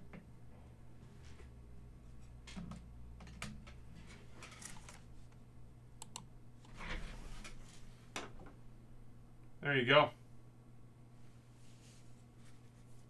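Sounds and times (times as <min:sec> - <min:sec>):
plastic holder rustling and scraping: 0:03.3 - 0:05.1.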